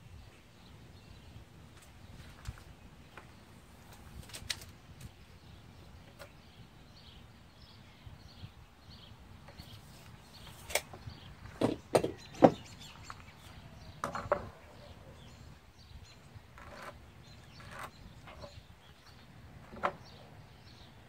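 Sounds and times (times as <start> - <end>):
tools knocking on wooden board: 11.5 - 12.6.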